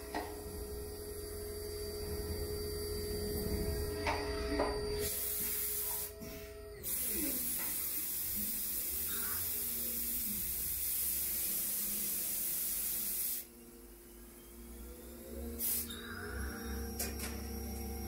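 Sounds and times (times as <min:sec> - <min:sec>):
lathe machine whine: 0:00.0 - 0:07.1, 0:13.5 - 0:18.0
coolant spray hissing: 0:05.0 - 0:06.1, 0:06.8 - 0:13.5, 0:15.6 - 0:15.9.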